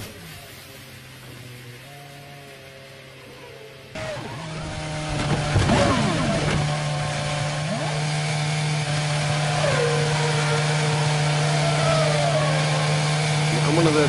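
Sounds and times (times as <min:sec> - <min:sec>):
race car engine running: 0:03.9 - 0:14.0.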